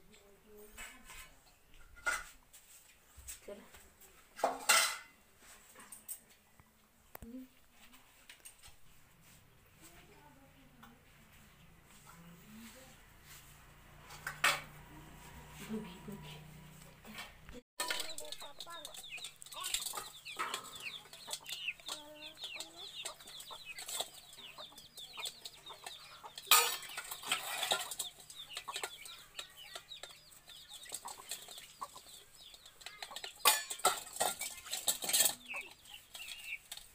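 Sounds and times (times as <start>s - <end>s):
metal dishes clinking and scraping: 0.8s - 2.4s, 4.4s - 5.2s, 17.1s - 36.9s
birds chirping and clucking: 8.3s - 36.9s.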